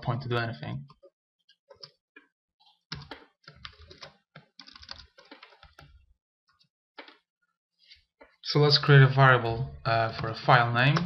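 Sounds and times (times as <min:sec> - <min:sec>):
keyboard typing: 0:02.6 - 0:06.0.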